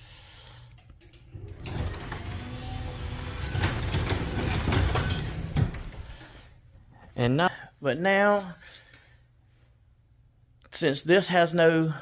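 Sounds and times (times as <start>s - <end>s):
garage door opener motor: 1.1s - 6.4s
garage door rattling on tracks: 1.4s - 6.2s.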